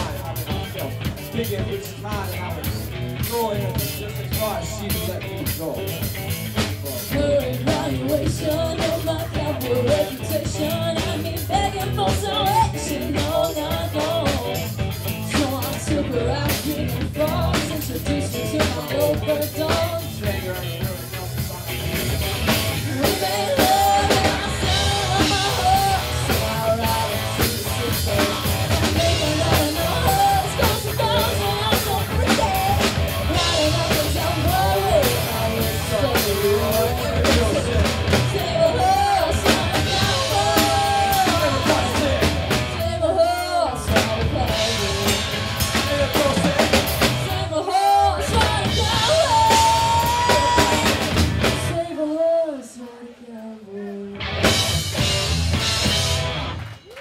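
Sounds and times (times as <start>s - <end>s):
rock band playing: 0.0s - 51.9s, 54.2s - 57.0s
woman singing: 7.0s - 20.4s, 22.8s - 54.2s.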